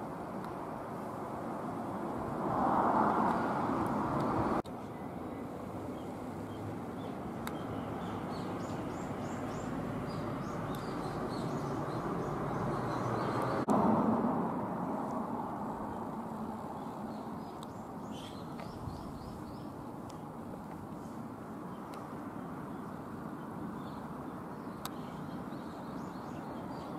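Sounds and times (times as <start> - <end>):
outdoor background noise: 0.0 - 26.9
small birds chirping: 4.6 - 13.7, 15.8 - 26.9.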